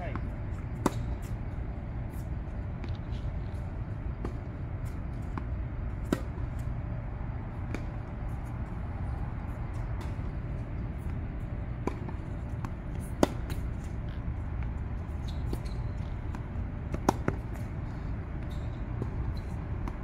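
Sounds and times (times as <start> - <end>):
racket striking tennis balls: 0.1 - 1.4, 4.1 - 6.8, 9.6 - 14.7, 15.5 - 17.7.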